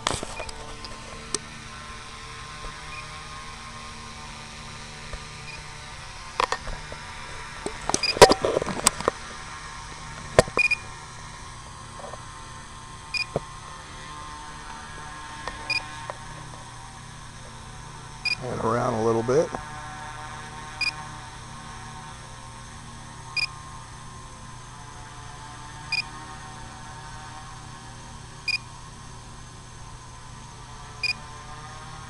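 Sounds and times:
drone motors humming: 0.0 - 32.0
sharp clicks and crackles: 7.6 - 9.2.

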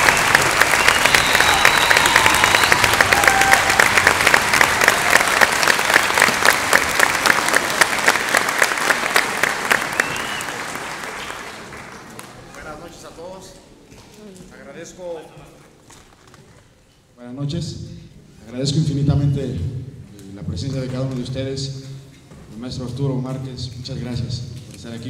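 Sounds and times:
audience applauding: 0.0 - 13.2.

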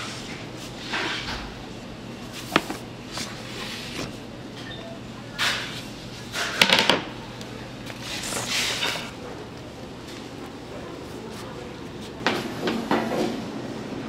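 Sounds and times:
baking paper rustling: 2.2 - 4.3.

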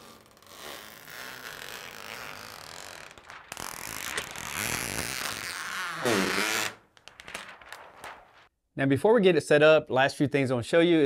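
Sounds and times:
plastic film peeling crackle: 0.0 - 8.5.

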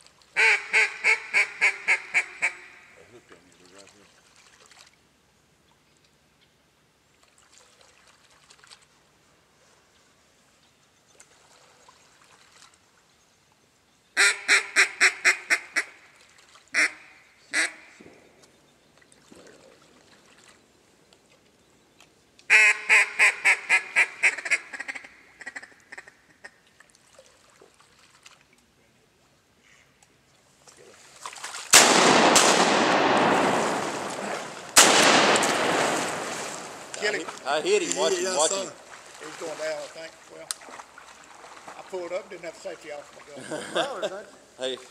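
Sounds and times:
duck call quacks: 0.4 - 3.0, 14.2 - 16.0, 16.7 - 18.0, 22.5 - 26.5
shotgun shots: 31.7 - 37.4.

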